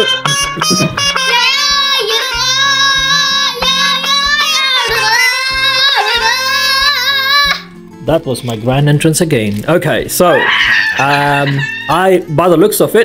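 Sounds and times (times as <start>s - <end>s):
bass line: 0.0s - 7.8s
high singing voice: 0.0s - 7.8s.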